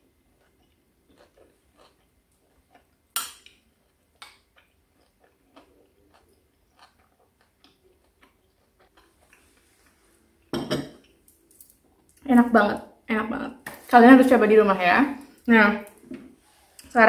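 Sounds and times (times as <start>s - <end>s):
faint chewing: 0.2s - 12.3s.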